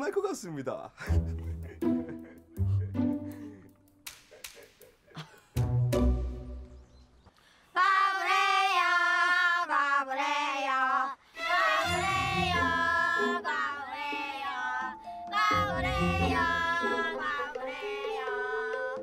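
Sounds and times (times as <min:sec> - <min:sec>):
backing music: 0:01.0 - 0:04.2, 0:05.5 - 0:06.9, 0:11.7 - 0:19.0
children singing a taunting chant: 0:07.8 - 0:19.0.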